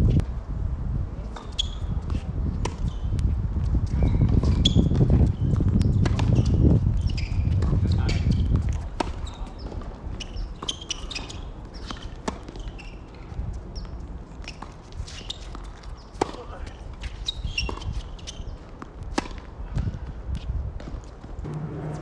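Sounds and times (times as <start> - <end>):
wind rumble on microphone: 0.0 - 10.6, 16.8 - 22.0
tennis ball bouncing: 4.3 - 6.4, 8.3 - 13.1, 13.8 - 19.9
racket striking tennis ball: 16.2 - 16.5, 19.1 - 19.5, 21.4 - 22.0.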